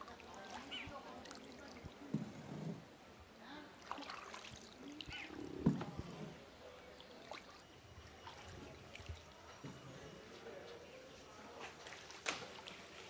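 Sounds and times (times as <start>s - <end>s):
paddle dipping in water: 0.0s - 3.0s, 3.8s - 7.6s.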